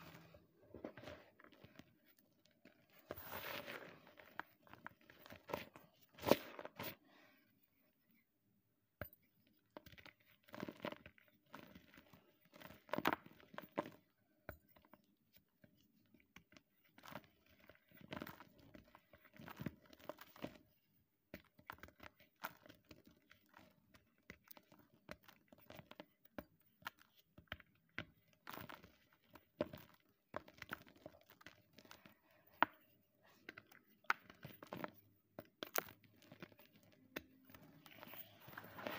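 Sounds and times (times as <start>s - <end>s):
chalk blocks crunching and crumbling: 2.8s - 6.9s.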